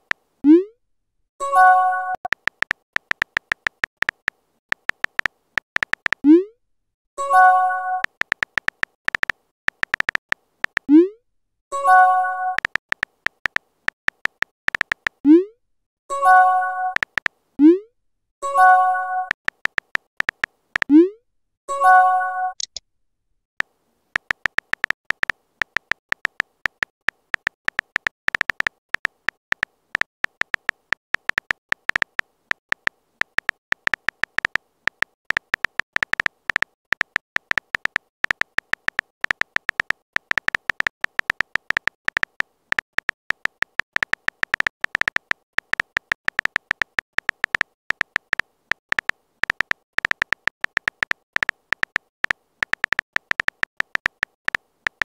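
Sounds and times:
phone keyboard typing clicks: 1.5s - 6.4s, 7.2s - 11.0s, 11.8s - 15.2s, 16.7s - 17.4s, 18.6s - 21.0s, 22.5s - 22.8s, 24.2s - 55.0s.

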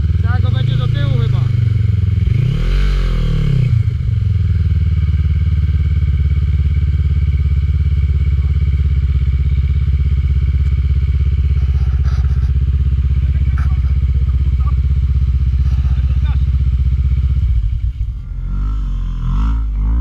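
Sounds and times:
quad bike engine revving and idling: 0.0s - 20.0s.

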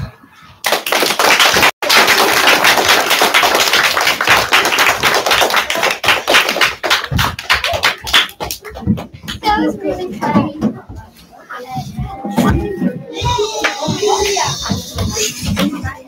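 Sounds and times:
audience clapping: 0.6s - 9.5s.

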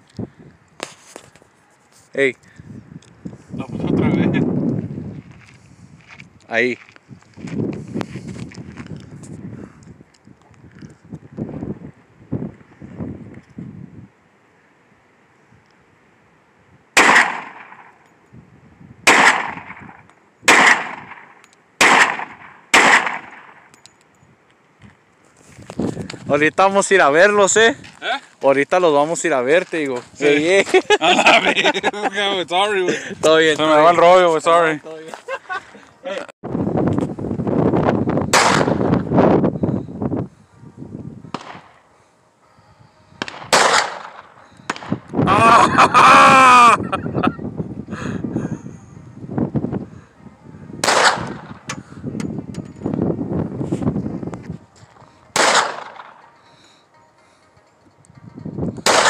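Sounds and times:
gunshots with echo: 17.0s - 17.9s, 19.1s - 19.9s, 20.5s - 23.6s, 43.2s - 45.0s, 50.8s - 51.6s, 55.3s - 56.2s.

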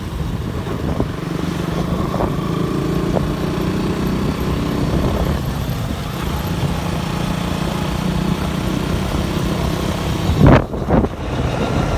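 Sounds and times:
vehicle engine and road noise: 0.0s - 11.9s
loud rush of noise: 9.2s - 11.9s.

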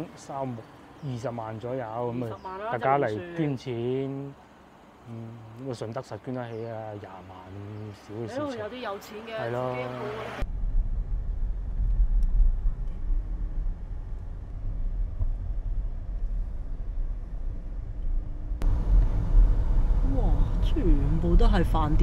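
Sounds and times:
car interior road rumble: 10.1s - 22.0s.

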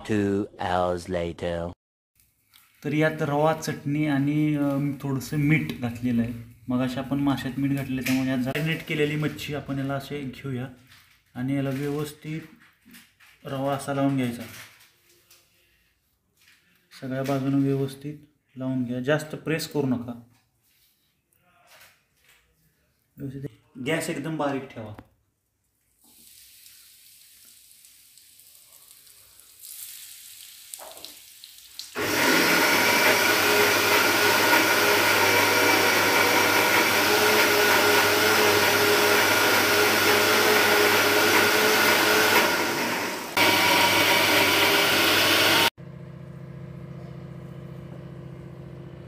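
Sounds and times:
fish sizzling in hot oil: 26.0s - 32.0s.

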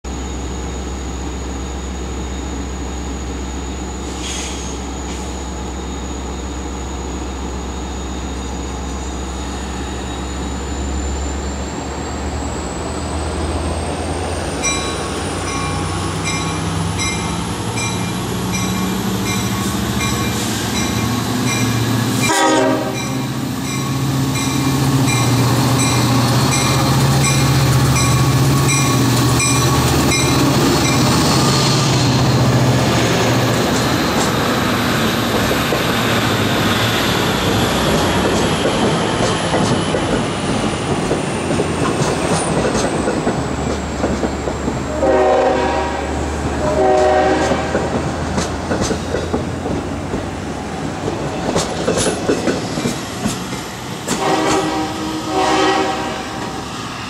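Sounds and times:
diesel locomotive approaching: 0.0s - 57.0s
train horn: 22.2s - 23.2s, 44.9s - 48.0s, 54.1s - 56.6s.

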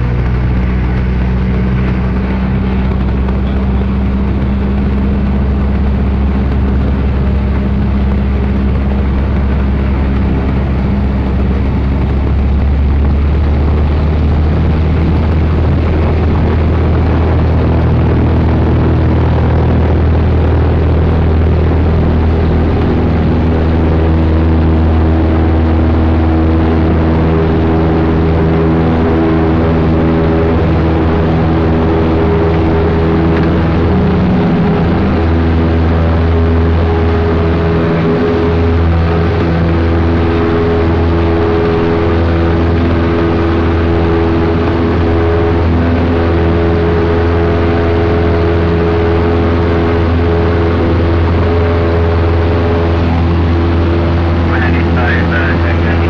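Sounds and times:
propeller plane engine drone: 0.0s - 56.0s.

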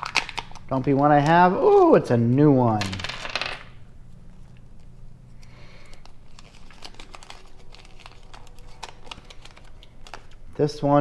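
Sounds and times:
paper leaflet crinkling: 4.3s - 11.0s.

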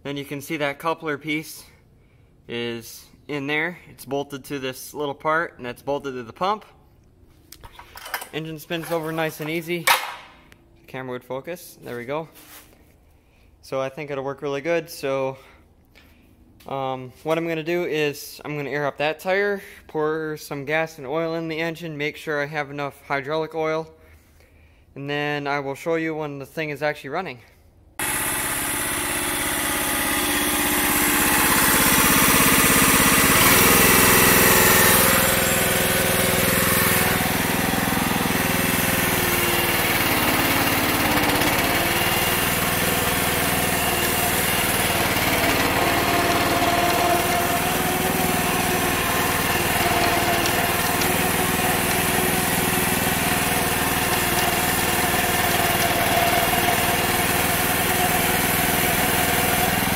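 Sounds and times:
small gas engine running: 28.0s - 59.9s.

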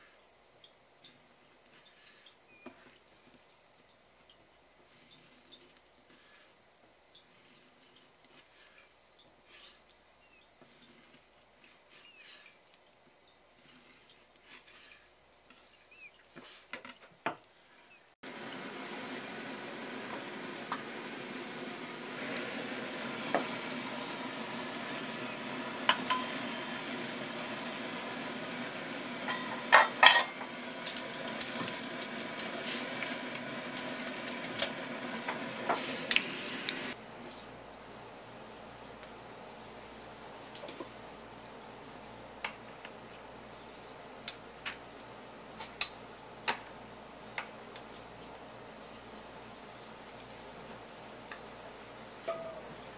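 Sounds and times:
steady hiss: 17.5s - 52.9s
water boiling in a pot: 18.2s - 52.9s
metal clanks against pot: 25.9s - 26.4s, 29.2s - 32.6s, 52.2s - 52.7s.

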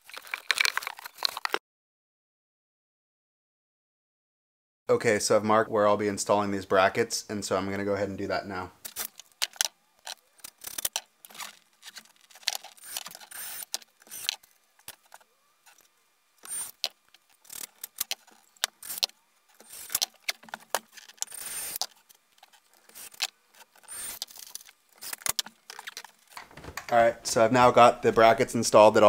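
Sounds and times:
cordless drill driving screws: 10.5s - 15.0s, 16.4s - 21.9s, 22.8s - 25.9s.

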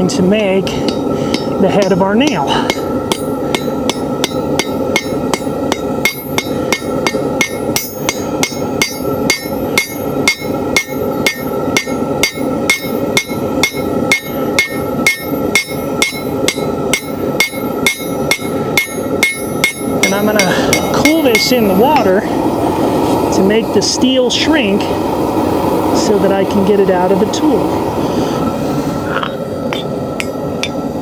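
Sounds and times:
hammer striking nail on anvil: 0.9s - 22.1s.

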